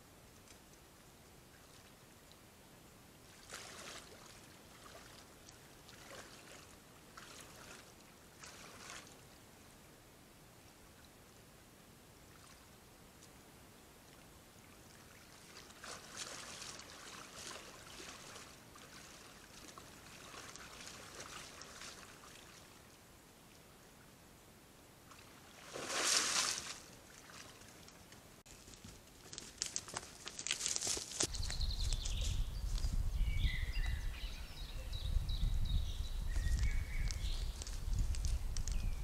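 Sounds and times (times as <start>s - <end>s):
deer splashing in stream: 3.2s - 9.2s, 14.7s - 23.0s, 25.1s - 27.9s
hoof steps on soft ground: 28.5s - 33.1s, 36.2s - 39.0s.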